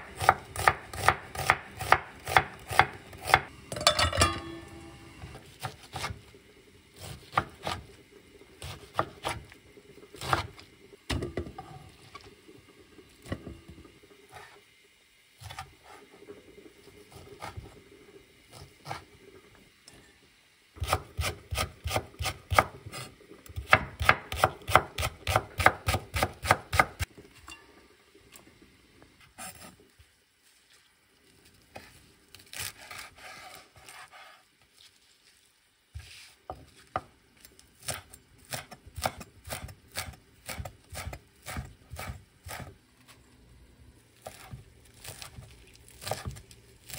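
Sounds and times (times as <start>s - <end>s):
knife chopping on wooden board: 0.1s - 3.5s, 23.6s - 27.0s, 46.0s - 46.4s.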